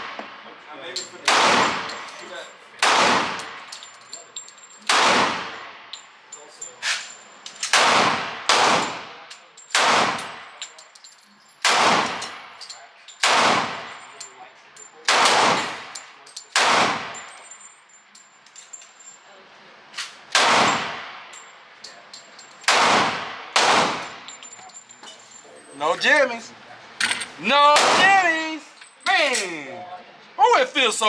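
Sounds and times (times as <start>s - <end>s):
pistol shots echoing indoors: 1.2s - 2.0s, 2.8s - 3.6s, 4.9s - 5.8s, 7.6s - 10.4s, 11.6s - 12.4s, 13.2s - 13.9s, 15.0s - 17.4s, 20.3s - 21.4s, 22.6s - 24.2s.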